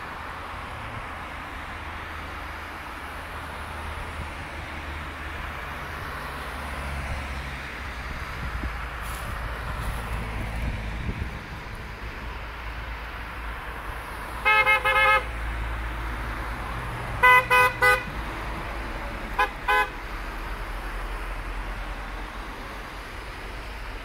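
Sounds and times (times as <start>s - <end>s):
traffic on a wet road: 0.0s - 24.0s
car horns honking: 14.4s - 15.3s, 17.2s - 18.1s, 19.4s - 20.0s.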